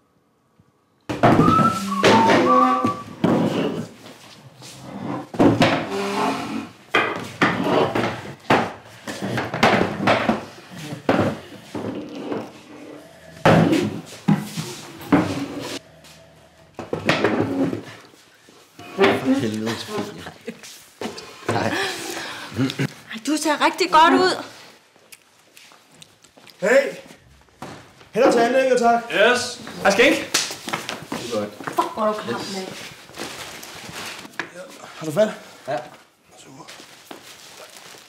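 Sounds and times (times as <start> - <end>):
wooden chairs knocking on floor: 1.1 - 3.9, 5.3 - 6.2, 6.9 - 12.6, 13.4 - 15.7, 16.8 - 18.0.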